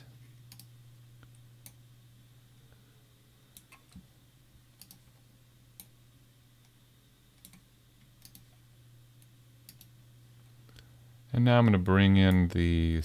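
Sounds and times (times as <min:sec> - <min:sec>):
low steady hum: 0:00.0 - 0:13.0
computer mouse and keyboard clicks: 0:04.8 - 0:05.1, 0:07.4 - 0:08.6.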